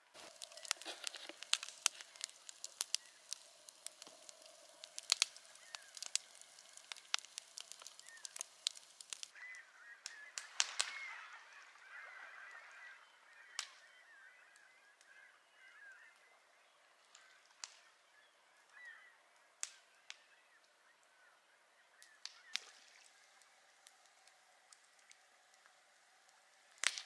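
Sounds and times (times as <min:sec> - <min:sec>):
campfire popping: 0:00.0 - 0:11.3, 0:18.7 - 0:20.4, 0:21.9 - 0:27.0
flock of birds calling: 0:00.0 - 0:16.4.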